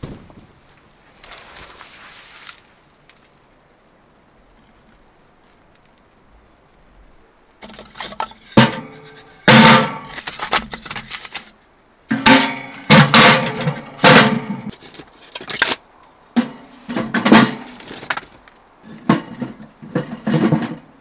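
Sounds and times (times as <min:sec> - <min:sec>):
logs knocking against metal stove: 0:07.6 - 0:10.3, 0:12.1 - 0:14.7, 0:16.4 - 0:18.2.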